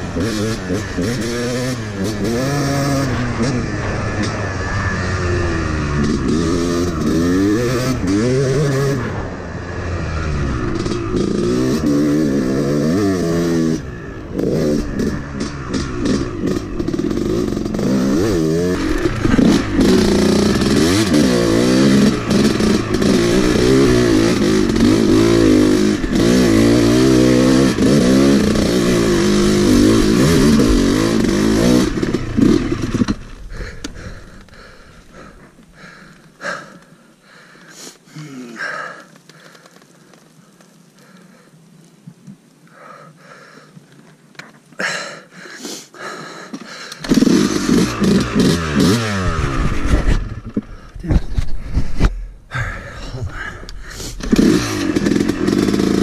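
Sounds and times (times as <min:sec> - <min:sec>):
dirt bike engine revving: 0:00.0 - 0:36.8, 0:46.0 - 0:56.0.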